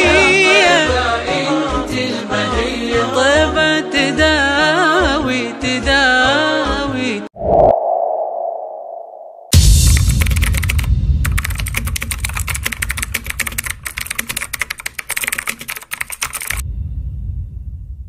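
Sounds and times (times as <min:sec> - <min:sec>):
rapid keyboard typing: 0:09.8 - 0:16.6
low rumble: 0:16.6 - 0:18.0.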